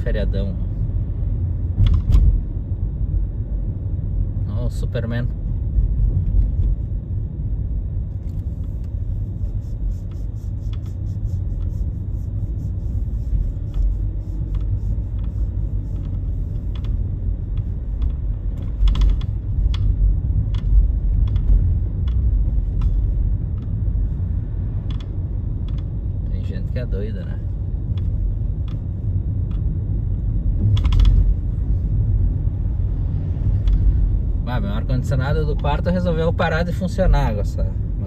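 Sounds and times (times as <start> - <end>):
car interior rumble: 0.0 - 38.0.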